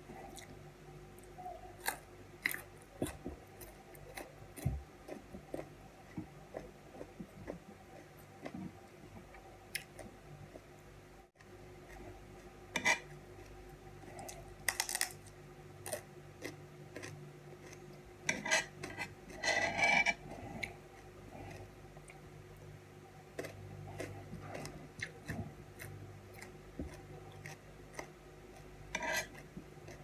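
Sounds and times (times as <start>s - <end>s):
close-up eating sounds: 0.0s - 30.0s
knife scraping on tray: 12.8s - 13.1s, 18.3s - 20.2s, 28.9s - 29.4s.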